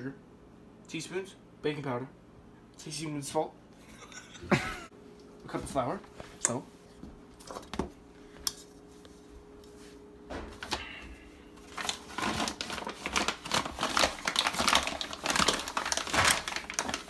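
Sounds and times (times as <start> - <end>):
paper bag rustling and crinkling: 11.5 - 17.0.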